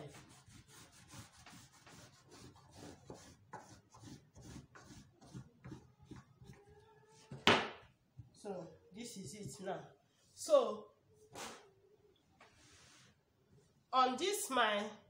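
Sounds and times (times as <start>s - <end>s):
marker scratching along ruler: 0.0s - 7.4s.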